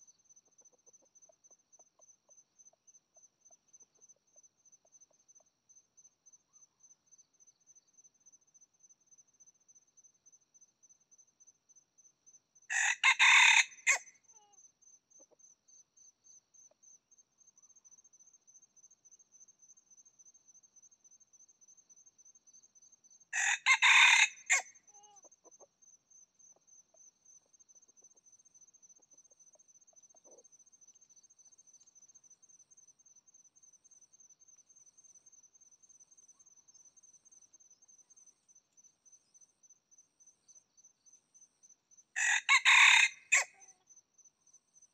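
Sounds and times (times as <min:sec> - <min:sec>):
rooster crowing: 0:12.7 - 0:14.0, 0:23.4 - 0:24.7, 0:42.2 - 0:43.6.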